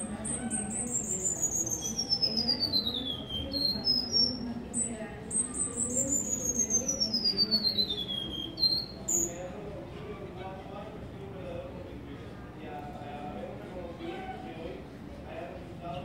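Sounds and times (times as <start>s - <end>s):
bird singing high notes: 0.2s - 9.4s.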